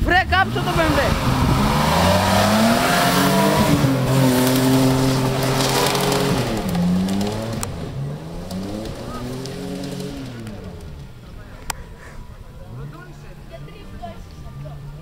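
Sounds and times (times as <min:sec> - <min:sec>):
car engine revving hard: 0:00.0 - 0:10.8
tyres spinning on dirt: 0:00.0 - 0:11.6.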